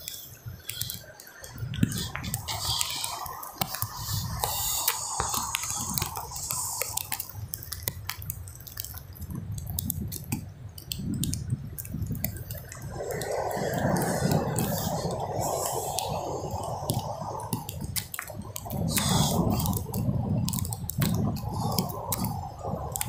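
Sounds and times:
sharp drip-like ticks: 0:00.0 - 0:23.0
surf washing on beach: 0:00.0 - 0:23.0
wind buffeting microphone: 0:00.0 - 0:23.0.

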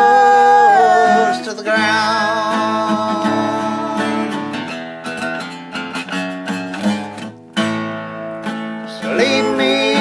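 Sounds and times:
person singing: 0:00.0 - 0:04.7, 0:08.9 - 0:10.0
acoustic guitar strumming: 0:00.0 - 0:10.0.

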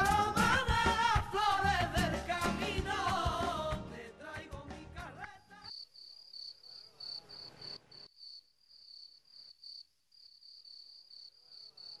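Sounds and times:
cricket chirping: 0:05.7 - 0:12.0.

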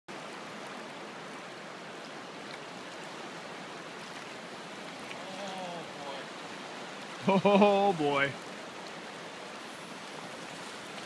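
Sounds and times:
river water rushing: 0:00.1 - 0:11.0
faint voice: 0:05.2 - 0:06.2.

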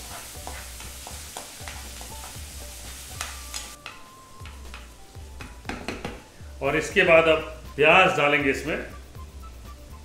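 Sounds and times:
spatula scraping pan: 0:00.0 - 0:03.6
food sizzling in hot oil: 0:00.0 - 0:05.7.

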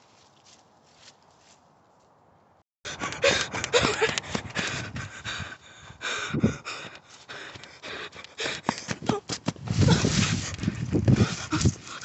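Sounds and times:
quick footsteps on forest floor: 0:00.0 - 0:02.1, 0:06.7 - 0:12.0
person gasping and breathing heavily: 0:02.9 - 0:12.0
microphone jostling: 0:08.7 - 0:12.0.

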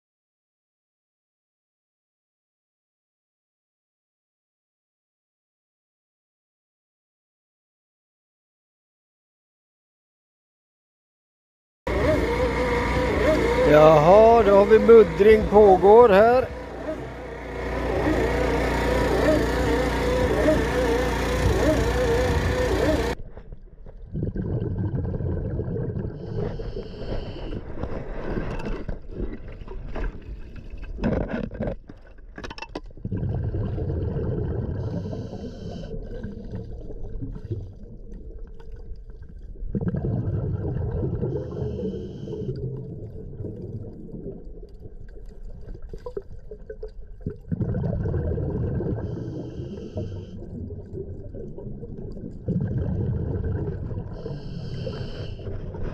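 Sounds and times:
diesel pump running: 0:11.9 - 0:23.2
high whine: 0:11.9 - 0:23.2
underwater rumbling and gurgling: 0:11.9 - 0:55.9.

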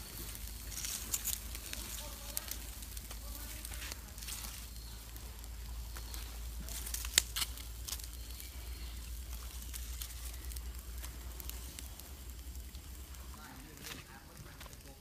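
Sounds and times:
fire crackling: 0:00.0 - 0:15.0
small snaps: 0:05.9 - 0:12.9.

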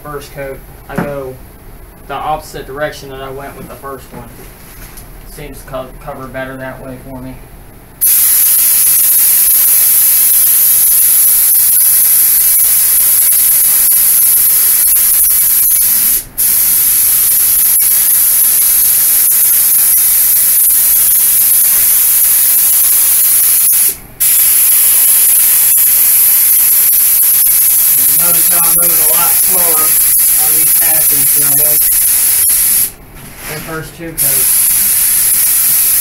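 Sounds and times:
paint spray gun hissing: 0:08.0 - 0:32.9, 0:34.2 - 0:36.0.

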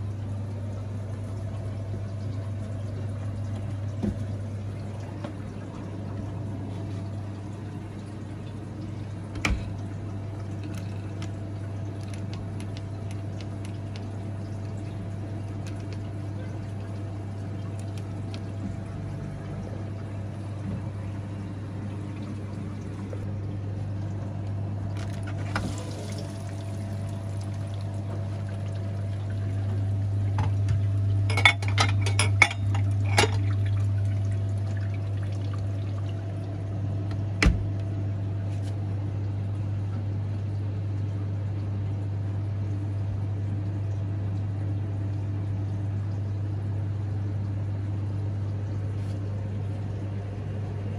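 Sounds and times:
dishwasher humming: 0:00.0 - 0:50.9
water running and filling: 0:00.6 - 0:36.6.

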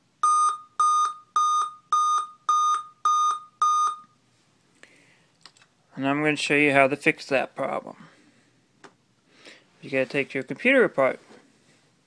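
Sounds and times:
laptop high beeps: 0:00.2 - 0:04.2.

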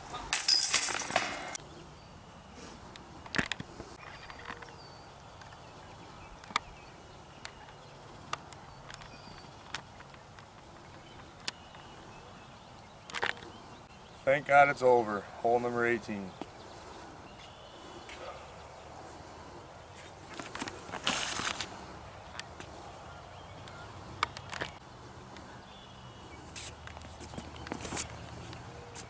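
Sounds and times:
chains jangling: 0:00.0 - 0:01.6.

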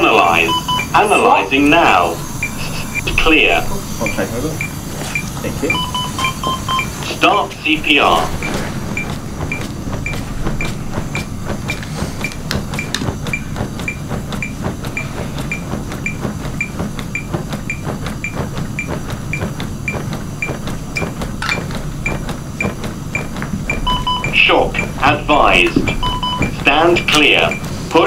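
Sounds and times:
metronome beeping: 0:05.7 - 0:06.9, 0:23.7 - 0:27.6.

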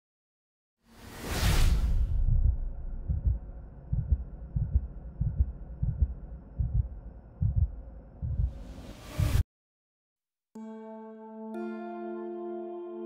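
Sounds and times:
whoosh: 0:00.9 - 0:04.4, 0:08.2 - 0:09.4
low thuds: 0:01.9 - 0:08.6.

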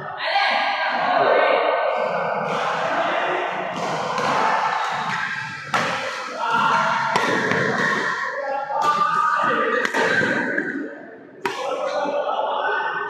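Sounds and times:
background voices: 0:01.2 - 0:13.0
badminton racket hitting shuttlecock: 0:05.0 - 0:08.2.

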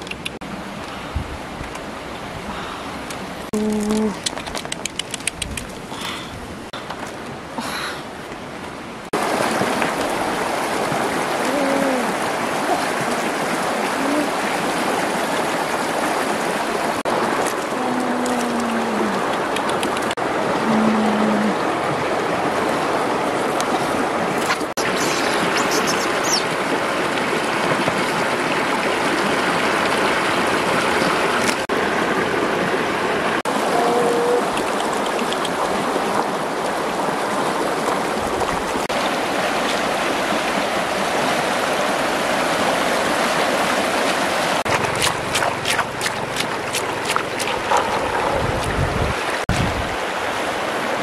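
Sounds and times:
small clicks: 0:00.0 - 0:00.4, 0:03.8 - 0:05.8
stream water trickling over rocks: 0:00.0 - 0:51.0.

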